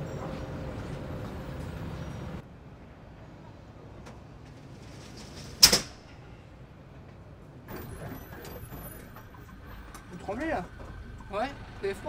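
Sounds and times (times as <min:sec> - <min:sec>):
roller shutter sliding down: 0:04.4 - 0:05.9.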